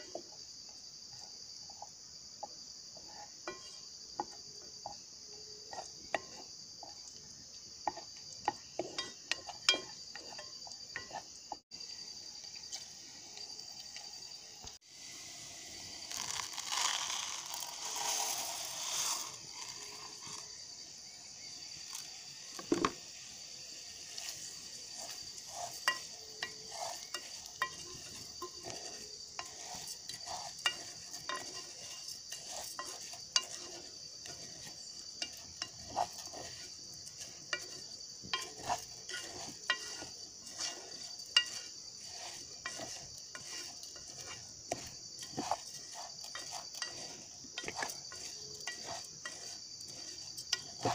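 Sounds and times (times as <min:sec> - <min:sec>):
steady sizzle: 0:00.0 - 0:50.9
wooden spoon knocking on pan: 0:07.8 - 0:11.6, 0:22.6 - 0:23.0
dry rice pouring into saucepan: 0:14.9 - 0:20.5, 0:26.6 - 0:50.9.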